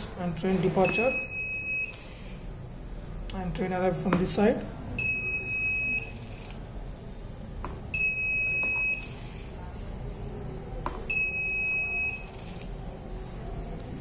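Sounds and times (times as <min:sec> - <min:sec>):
electronic buzzer beeps: 0:00.9 - 0:02.2, 0:05.0 - 0:06.5, 0:07.9 - 0:09.4, 0:11.1 - 0:12.5.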